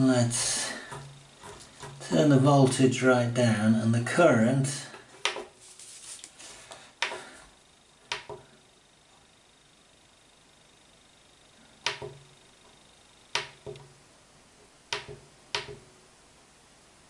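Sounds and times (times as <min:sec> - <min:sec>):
power supply control clicks: 0:05.2 - 0:05.5, 0:08.1 - 0:08.5, 0:11.8 - 0:12.3, 0:13.3 - 0:14.0, 0:14.9 - 0:15.9.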